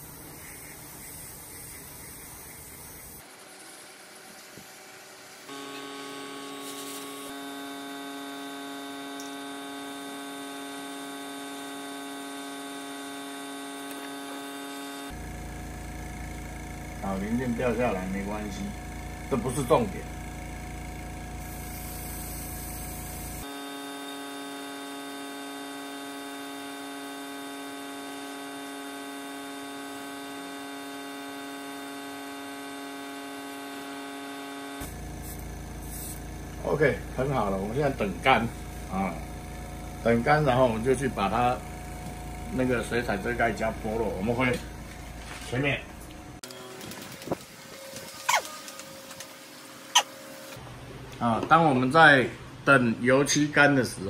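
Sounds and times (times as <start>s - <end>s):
airbrush spray hiss: 0.0s - 3.2s, 6.5s - 7.3s, 21.4s - 23.5s, 35.2s - 36.3s
steady electrical hum: 0.0s - 54.0s.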